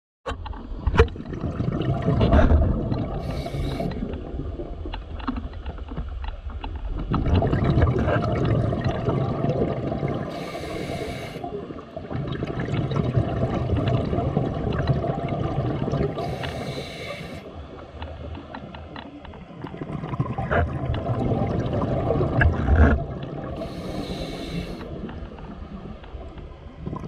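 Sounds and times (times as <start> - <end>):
gurgle of exhaled bubbles: 0.9 - 5.1, 6.9 - 18.2, 19.4 - 27.0
hissing regulator inhale: 3.2 - 4.2, 10.3 - 11.5, 16.2 - 17.5, 23.6 - 25.1.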